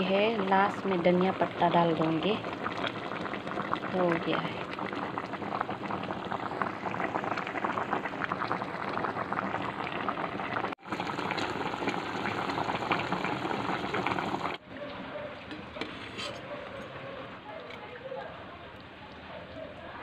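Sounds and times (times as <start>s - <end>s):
soup boiling with crackling bubbles: 0.0s - 14.7s.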